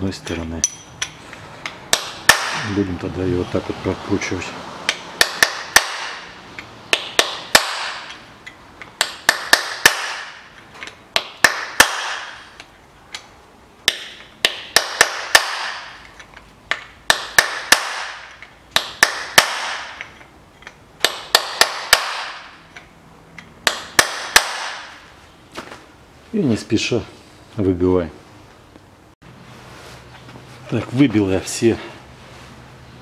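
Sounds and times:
hammer striking pin punch: 0.6 - 2.8, 4.9 - 25.0.

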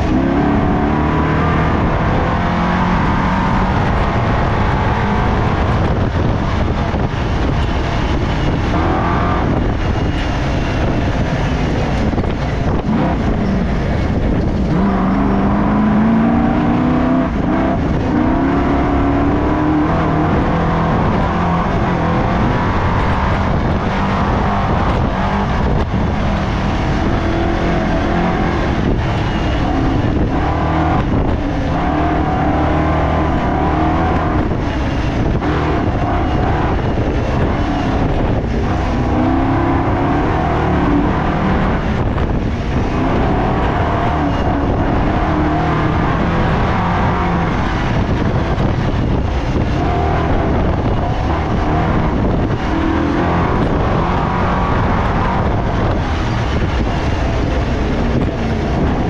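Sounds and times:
race car engine revving: 0.0 - 59.0
wind and road noise: 0.0 - 59.0.

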